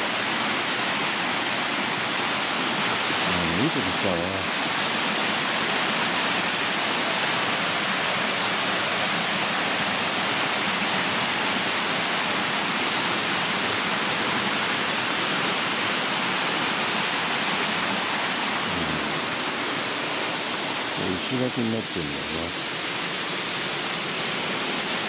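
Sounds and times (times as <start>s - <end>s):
waterfall rushing: 0.0s - 25.0s.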